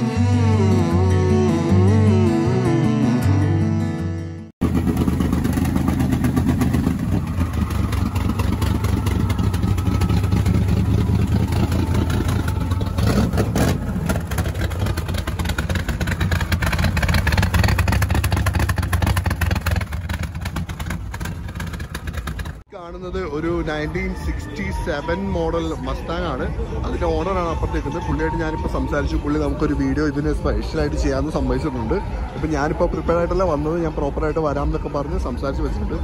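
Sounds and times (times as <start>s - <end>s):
car engine running and revving: 4.6s - 22.7s.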